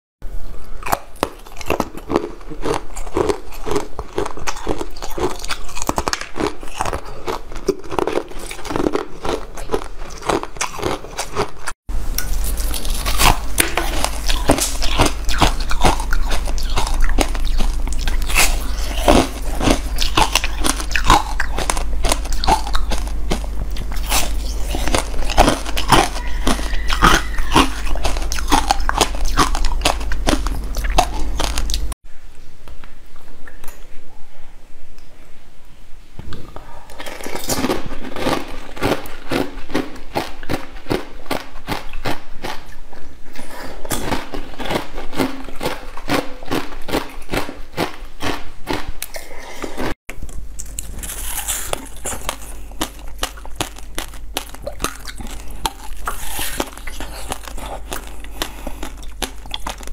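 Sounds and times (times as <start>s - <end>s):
steady low hum: 0.2s - 59.9s
crunching ice: 0.8s - 31.8s, 50.6s - 59.9s.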